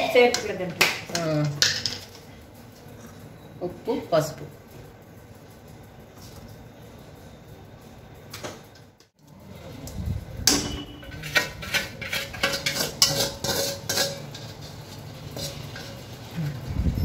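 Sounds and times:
spoon scraping metal pan: 10.5s - 16.4s.

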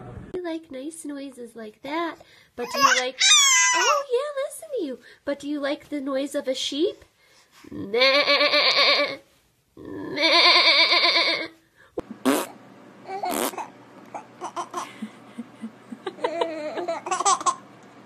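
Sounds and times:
baby laughing and giggling: 2.6s - 4.1s, 13.1s - 17.6s
sheep-like bleats: 9.9s - 11.5s.

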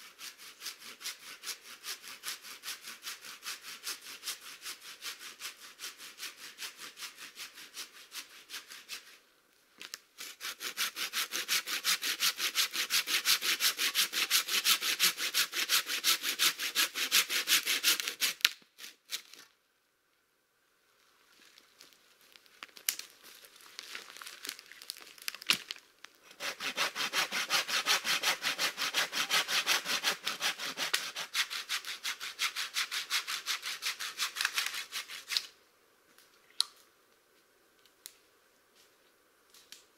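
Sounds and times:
hand saw cutting log: 0.0s - 9.2s, 10.2s - 18.9s, 26.3s - 35.4s.

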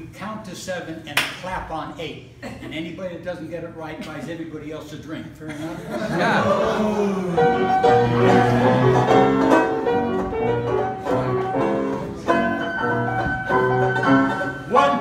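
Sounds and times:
ragtime piano: 7.3s - 15.0s
banjo strumming: 7.4s - 15.0s.

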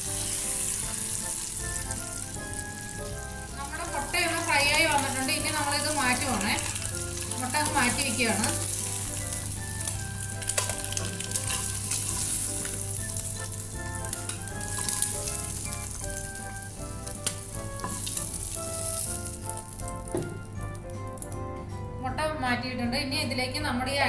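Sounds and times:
oil sizzling in a frying pan: 0.0s - 21.4s.

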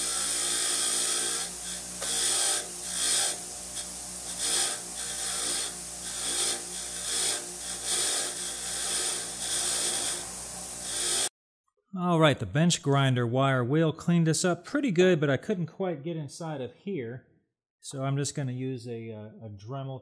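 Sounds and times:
bench grinder motor humming: 0.0s - 11.3s
wire brush scratching rust: 0.0s - 11.3s.

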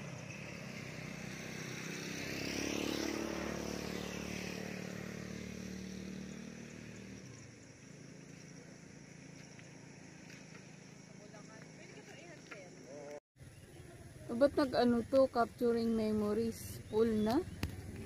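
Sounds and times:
vehicle engine passing: 0.0s - 11.9s.

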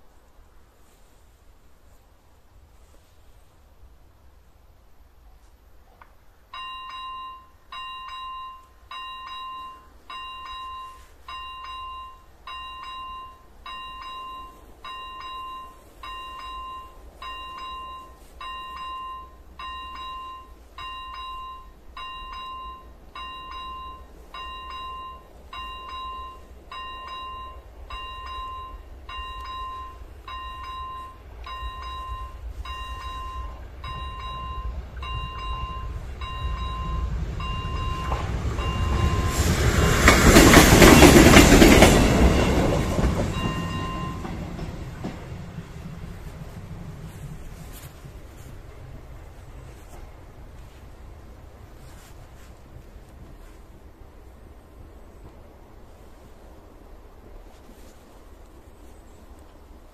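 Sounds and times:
low train rumble: 0.0s - 59.9s
level crossing bell dinging: 6.6s - 39.4s, 43.3s - 44.4s.

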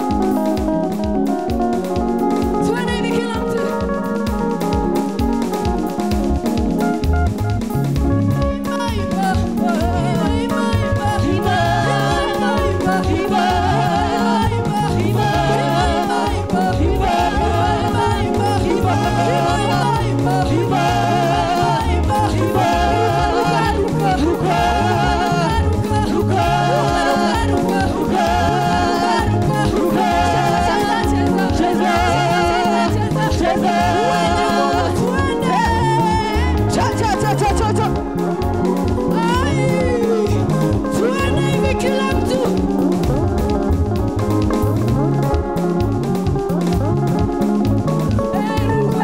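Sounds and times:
amplified band: 0.0s - 49.0s
group singing into microphones: 0.0s - 49.0s
steady drum beat: 0.0s - 49.0s.

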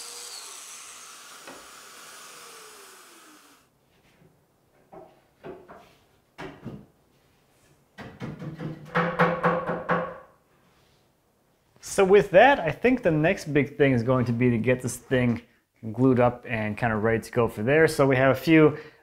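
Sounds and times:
wood rubbing: 0.0s - 3.6s
electric joiner running down: 0.0s - 3.7s.

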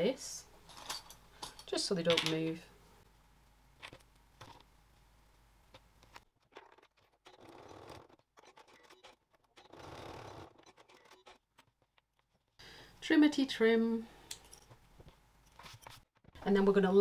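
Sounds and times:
sewing machine stitching: 6.4s - 11.7s.

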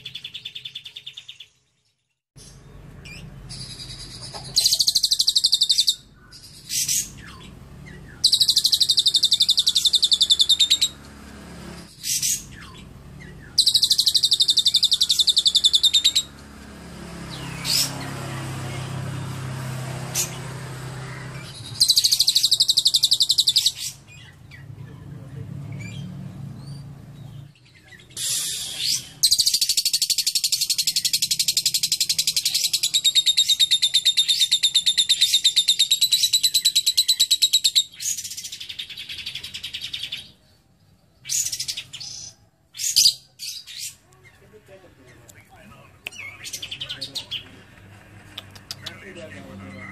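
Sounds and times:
lovebird chattering trill: 2.4s - 11.0s, 11.9s - 16.3s, 21.1s - 24.4s, 28.2s - 40.3s.

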